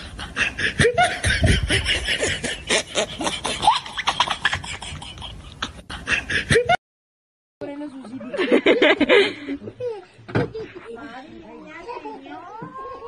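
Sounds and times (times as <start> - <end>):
person laughing hard: 0.2 - 6.8.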